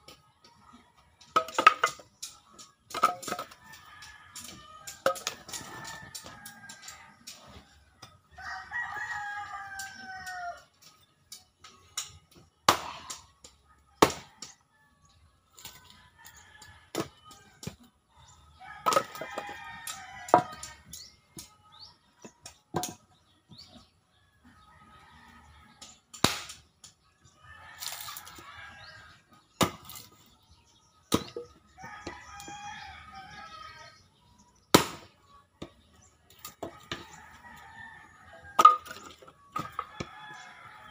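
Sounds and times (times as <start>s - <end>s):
roosters crowing: 0.5s - 11.1s, 12.4s - 26.2s, 27.2s - 34.8s, 36.0s - 40.9s
axe splitting firewood: 29.6s - 30.2s, 34.7s - 35.1s.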